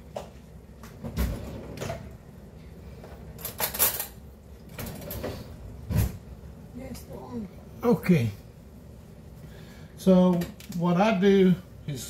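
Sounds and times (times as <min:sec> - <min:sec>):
kitchen items clattering: 0:03.0 - 0:05.6.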